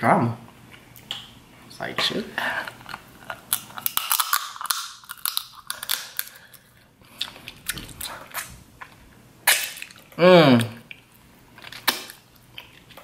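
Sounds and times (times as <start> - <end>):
crab shells cracking: 2.8 - 8.5.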